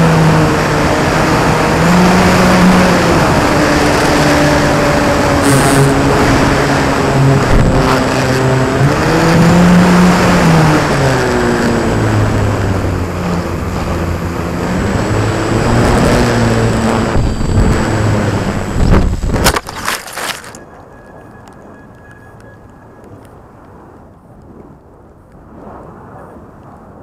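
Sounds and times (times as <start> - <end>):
model plane electric motor: 1.6 - 19.5.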